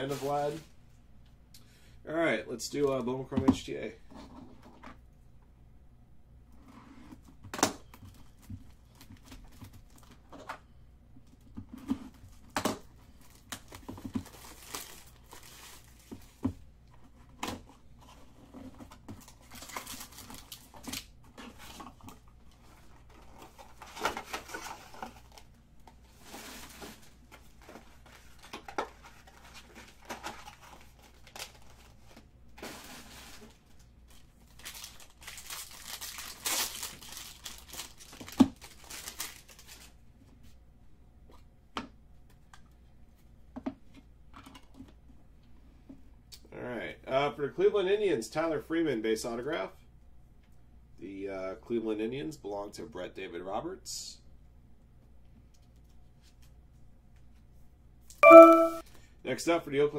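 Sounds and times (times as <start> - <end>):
foil wrappers crinkling and tearing: 13.1 - 16.4, 19.2 - 22.1, 26.3 - 40.0.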